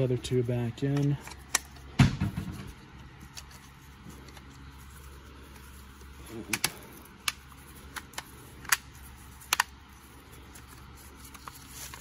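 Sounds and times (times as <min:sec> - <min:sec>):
sharp plastic clicks: 0:06.5 - 0:09.8.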